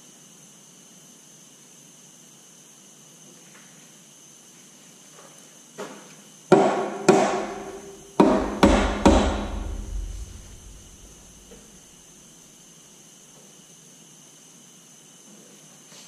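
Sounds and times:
hammer striking metal housing: 6.6s - 11.6s.

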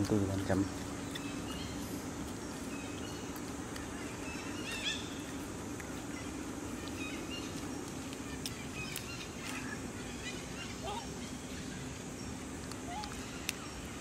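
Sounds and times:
high animal chirps and squeaks: 6.1s - 11.8s.

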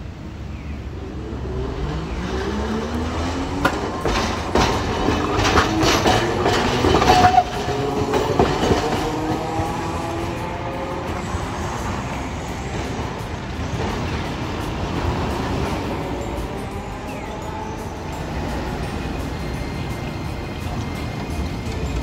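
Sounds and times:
wheels clattering over rail joints: 2.3s - 22.0s
wheel squeal: 3.7s - 10.1s.

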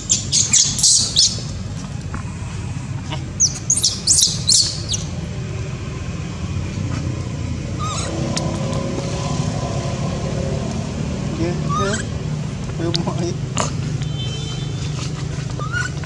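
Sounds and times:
baby monkey squealing: 0.0s - 1.6s, 3.4s - 5.2s, 7.8s - 8.5s, 11.5s - 12.2s, 14.8s - 16.0s
steady low rumble: 0.0s - 14.1s
vehicle engine hum: 0.0s - 16.0s.

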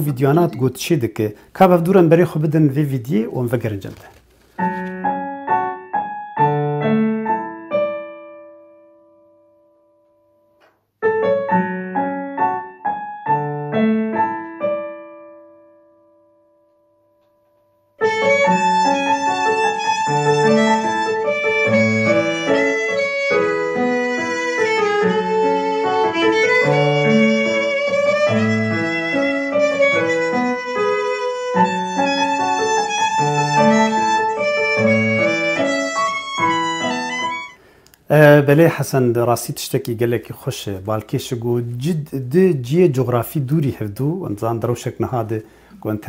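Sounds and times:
electronic keyboard chords: 18.0s - 37.6s
violin with vibrato: 18.0s - 37.6s.

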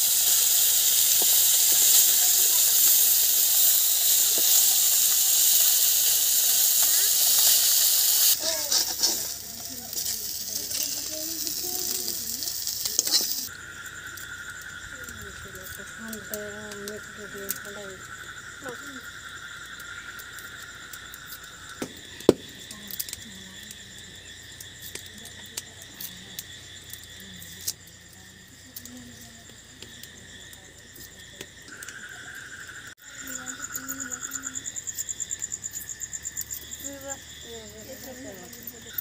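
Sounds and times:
garlic skins crackling: 0.0s - 17.8s
fast pulsing insect trill: 0.0s - 39.0s
insects trilling: 0.0s - 39.0s.

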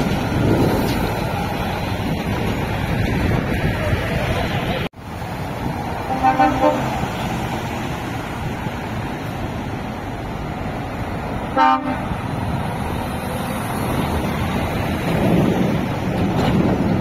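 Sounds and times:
lorry engines and traffic: 0.0s - 17.0s
lorry horn tooting: 6.1s - 7.0s, 11.6s - 12.1s.

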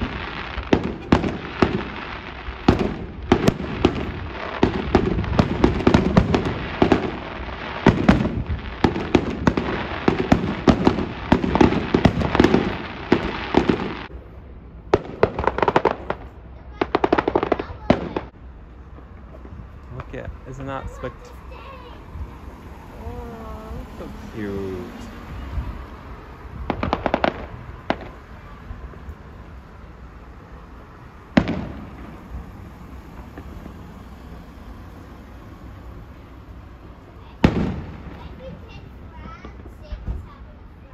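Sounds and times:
fireworks pops: 0.0s - 14.1s, 15.0s - 20.2s, 26.6s - 29.1s, 31.4s - 34.0s, 37.4s - 40.5s
fireworks bangs and crackles: 0.0s - 40.9s.

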